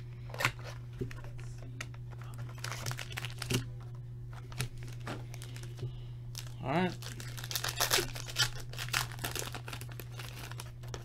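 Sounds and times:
wrapper crinkling and tearing: 2.2 - 3.7, 4.5 - 11.0.

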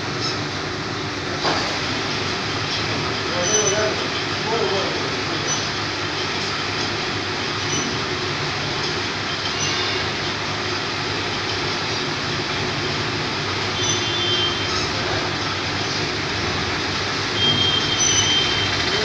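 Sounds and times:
machine mechanical drone: 0.0 - 19.0.

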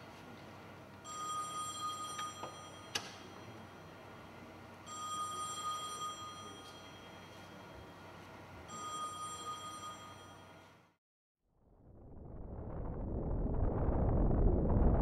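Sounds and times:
electronic telephone ringing: 1.1 - 2.9, 4.9 - 6.7, 8.7 - 10.5.

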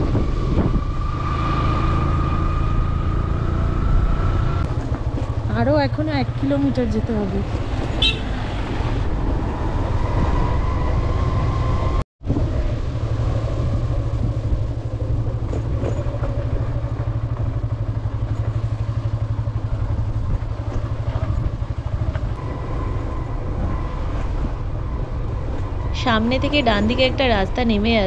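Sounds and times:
motorcycle engine running: 0.0 - 8.6, 12.4 - 24.2.

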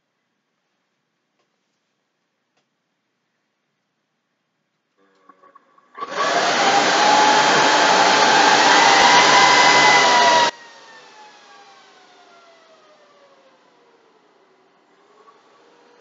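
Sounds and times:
server fans rushing with whine: 6.0 - 16.0.

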